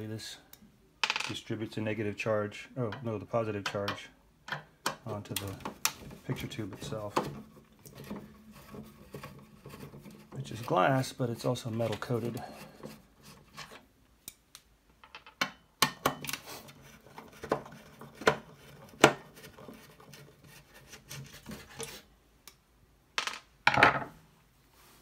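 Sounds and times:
clicks and knocks of plastic parts: 3.7s - 8.8s.

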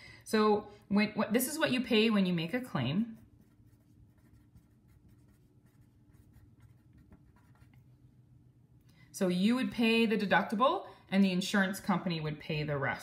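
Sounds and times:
pen scratching on paper: 3.2s - 7.8s.

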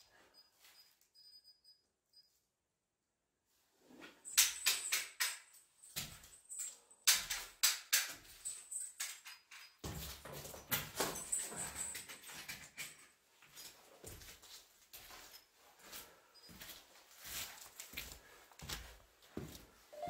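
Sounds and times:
objects knocking and clicking: 4.2s - 13.1s.

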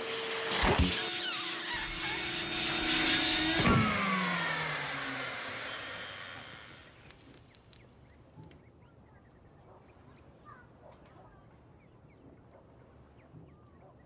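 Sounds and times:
vacuum cleaner motor spinning down: 0.0s - 7.3s.

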